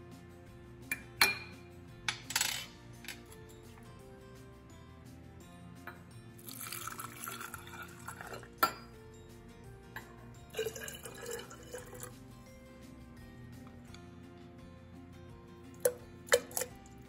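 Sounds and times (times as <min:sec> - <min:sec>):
faint background music: 0:00.0 - 0:17.0
metal cup clinking on glass: 0:00.9 - 0:03.2, 0:05.8 - 0:09.0, 0:10.0 - 0:12.1, 0:15.8 - 0:16.9
water pouring into glass jar: 0:06.4 - 0:08.6, 0:10.5 - 0:12.2, 0:15.8 - 0:17.0.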